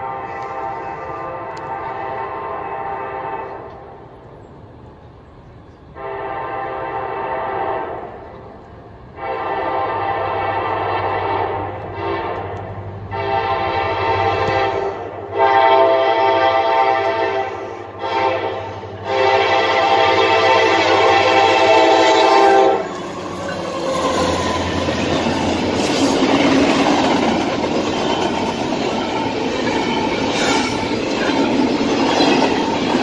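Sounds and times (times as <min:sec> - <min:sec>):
locomotive air horn blasts: 0:00.0 - 0:03.9, 0:06.0 - 0:08.3, 0:09.1 - 0:25.1.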